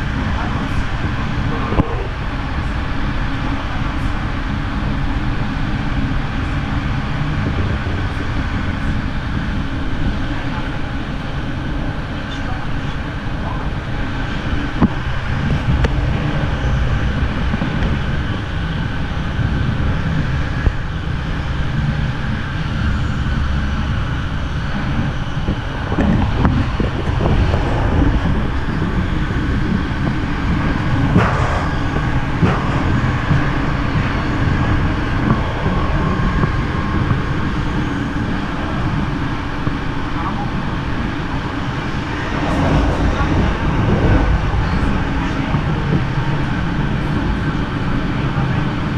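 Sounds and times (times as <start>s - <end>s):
train low rumble: 0.0s - 48.9s.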